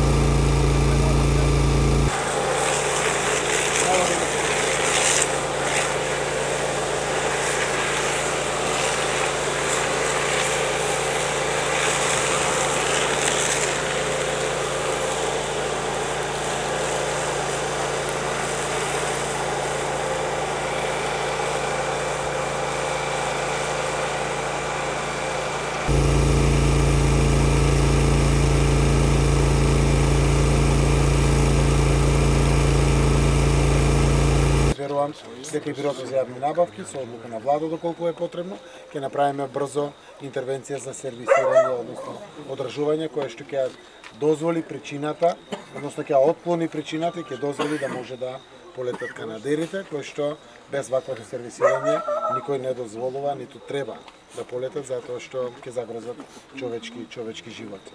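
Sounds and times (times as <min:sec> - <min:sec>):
strong deep hum: 0:00.0 - 0:02.1, 0:25.9 - 0:34.8
engine running steadily: 0:00.0 - 0:34.8.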